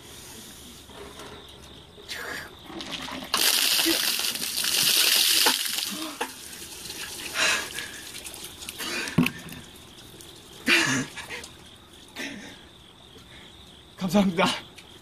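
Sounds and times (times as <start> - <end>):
water trickling and dripping: 2.1 - 13.8.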